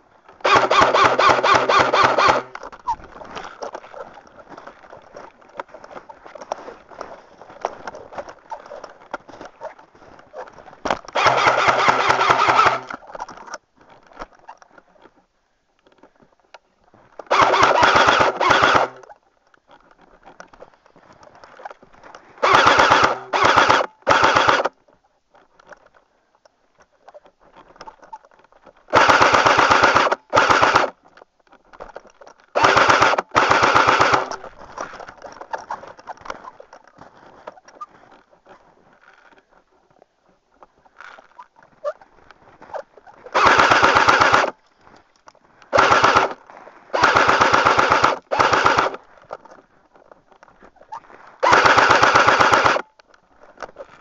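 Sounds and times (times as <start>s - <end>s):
airsoft rifle firing bursts: 0.4s - 2.6s, 11.1s - 13.0s, 17.3s - 19.1s, 22.4s - 24.7s, 28.9s - 30.9s, 32.6s - 34.4s, 43.4s - 44.6s, 45.7s - 49.0s, 51.4s - 52.8s
steady whir: 11.2s - 12.9s, 22.4s - 24.7s, 45.8s - 46.4s, 47.0s - 49.0s, 51.4s - 52.8s.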